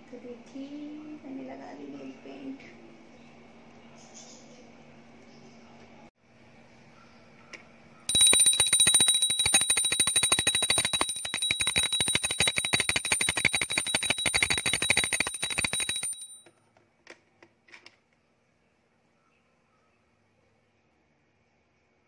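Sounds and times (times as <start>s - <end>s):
hand bell rung fast: 8.1s - 16.4s.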